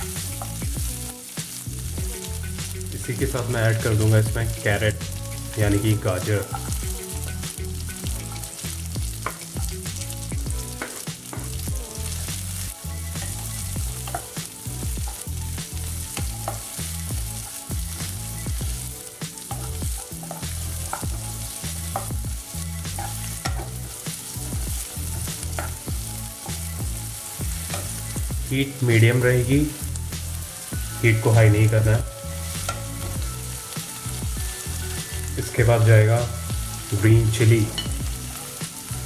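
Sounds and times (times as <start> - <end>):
vegetables sizzling in a pan: 0.0 - 39.0
wooden spatula scraping a pan: 13.1 - 33.5.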